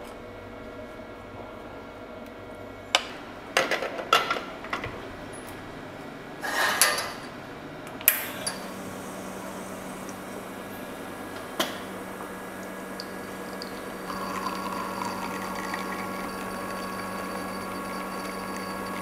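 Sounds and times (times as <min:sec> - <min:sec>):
espresso machine pump humming: 0:08.4 - 0:19.0.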